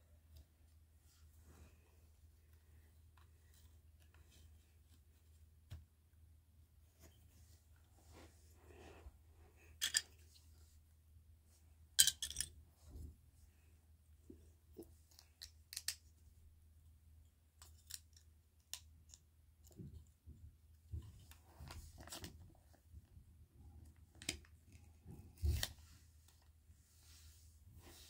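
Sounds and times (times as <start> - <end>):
plastic bricks clicking and clattering: 12.0 - 12.5.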